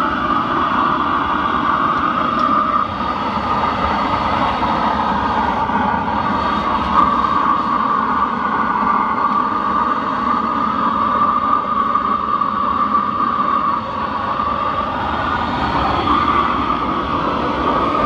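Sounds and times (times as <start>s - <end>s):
furnace burner roaring: 0.0s - 18.0s.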